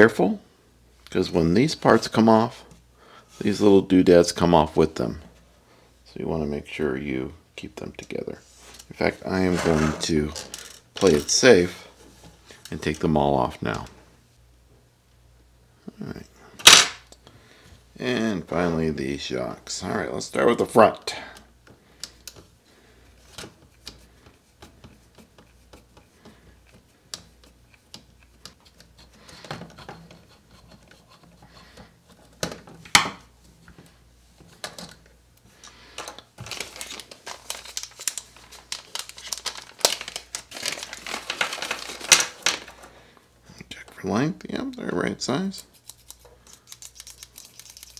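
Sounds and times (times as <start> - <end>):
plastic packaging crinkling: 36.4 - 42.9, 46.6 - 47.9.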